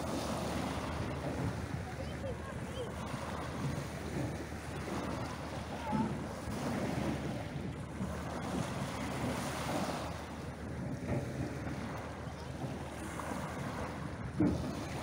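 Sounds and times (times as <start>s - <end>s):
waves washing onto pebble beach: 0.0s - 15.0s
wind rumbling on microphone: 0.0s - 15.0s.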